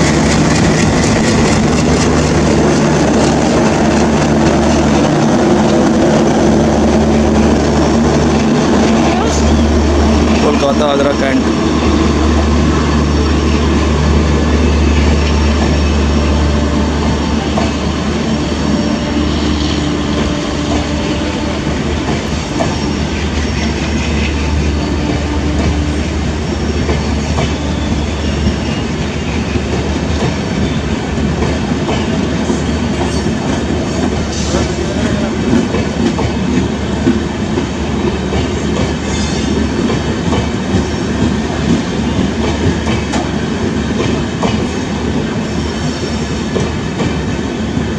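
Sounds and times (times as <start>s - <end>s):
train wheels rolling over rails: 0.0s - 47.9s.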